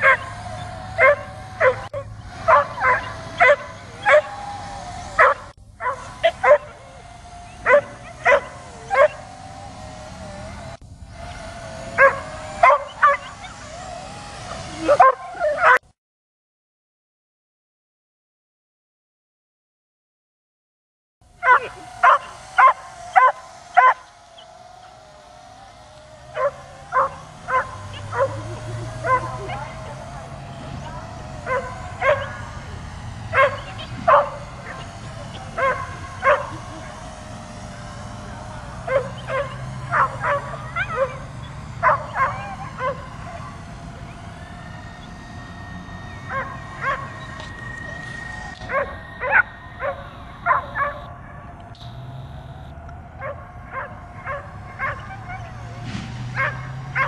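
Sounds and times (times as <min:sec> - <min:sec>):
dog barking: 0:00.0 - 0:00.4, 0:01.0 - 0:04.3, 0:05.2 - 0:06.8, 0:07.6 - 0:09.2, 0:12.0 - 0:13.6, 0:14.5 - 0:15.8, 0:21.4 - 0:24.1, 0:26.3 - 0:29.8, 0:31.4 - 0:32.4, 0:33.3 - 0:36.7, 0:38.9 - 0:43.4, 0:46.3 - 0:47.1, 0:48.7 - 0:51.1, 0:53.2 - 0:55.5, 0:56.3 - 0:57.0
drone whine: 0:00.0 - 0:15.8, 0:21.2 - 0:57.0.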